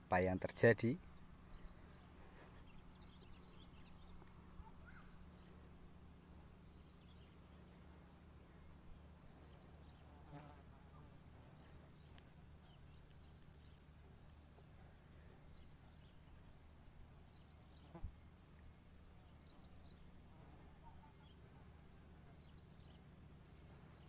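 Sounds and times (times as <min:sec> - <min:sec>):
high insect trill: 0:00.0 - 0:24.0
low hum: 0:00.0 - 0:24.0
faint ticks: 0:10.0 - 0:14.7.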